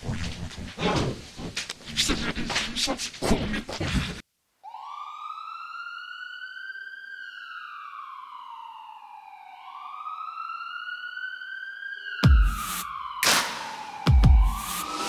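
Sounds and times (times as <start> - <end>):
siren wailing: 4.6 - 15.0.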